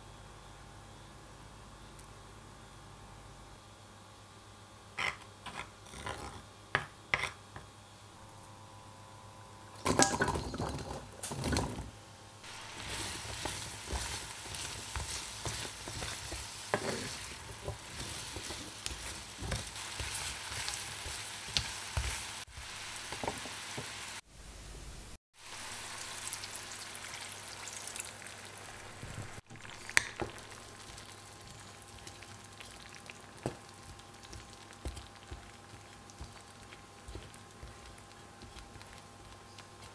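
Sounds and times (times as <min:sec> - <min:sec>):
food sizzling in butter: 0:12.4 - 0:24.2, 0:25.4 - 0:39.9
wooden spoon scraping pan: 0:12.5 - 0:22.4.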